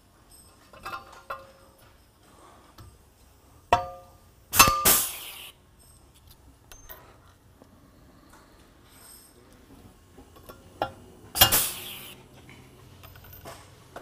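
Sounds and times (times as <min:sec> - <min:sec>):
air hiss: 0:04.5 - 0:05.6, 0:11.4 - 0:12.3.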